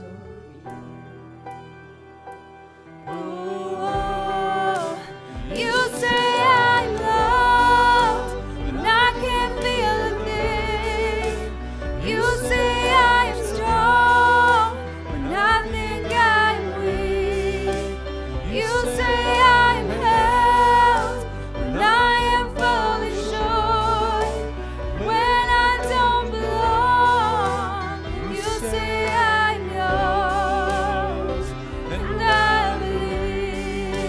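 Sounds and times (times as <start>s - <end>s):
instrumental accompaniment: 0.0s - 34.0s.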